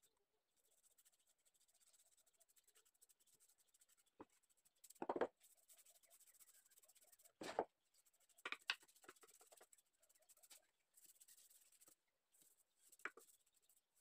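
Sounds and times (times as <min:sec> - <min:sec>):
wooden piece knocking: 0:05.0 - 0:05.3.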